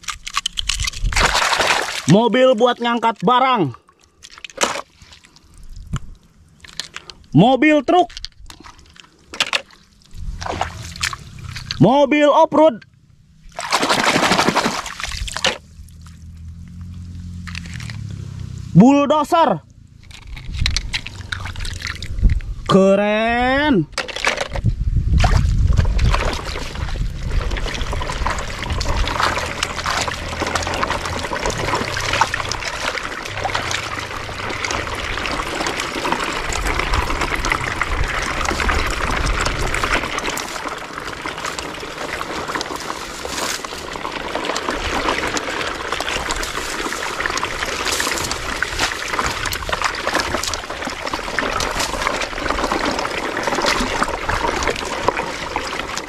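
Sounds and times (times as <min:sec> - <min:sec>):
stream trickling over gravel: 0:00.0 - 0:12.0, 0:13.3 - 0:18.8, 0:20.0 - 0:56.0
low rumble: 0:10.1 - 0:11.9, 0:19.6 - 0:22.8, 0:24.5 - 0:52.6.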